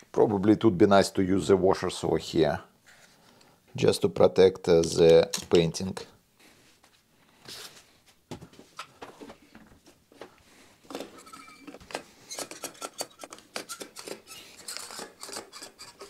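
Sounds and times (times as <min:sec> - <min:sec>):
plastic and metal parts clicking: 0:10.9 - 0:16.0
brief squeaks: 0:11.2 - 0:16.0.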